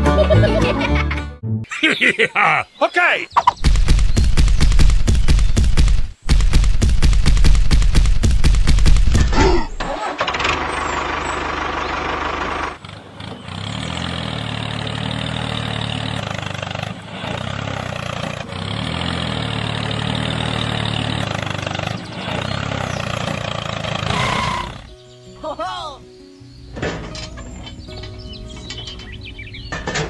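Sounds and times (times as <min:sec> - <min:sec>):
tractor engine revving: 0:03.4 - 0:25.0.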